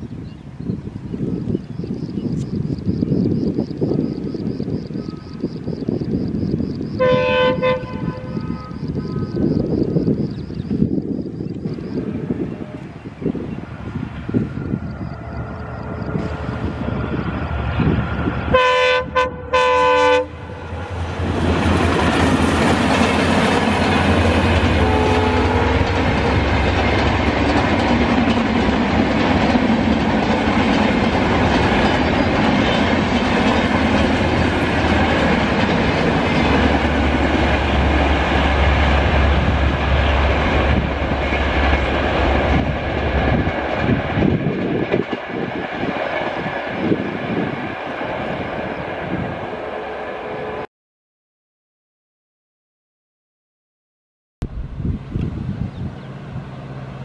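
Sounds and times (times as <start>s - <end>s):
diesel locomotive engine drone: 0.1s - 50.7s, 54.4s - 57.0s
locomotive horn blasts: 7.0s - 9.6s, 18.5s - 21.0s, 24.6s - 26.3s
train wheels clicking over rail joints: 25.7s - 47.0s.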